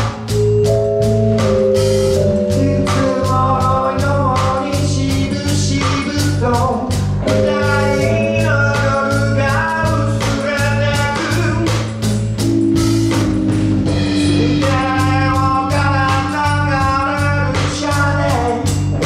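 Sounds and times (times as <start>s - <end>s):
congas: 0.0s - 19.0s
drum kit beat: 0.0s - 19.0s
electric bass: 0.0s - 19.0s
electric keyboard: 0.0s - 19.0s
man singing: 2.4s - 12.1s, 14.2s - 18.8s.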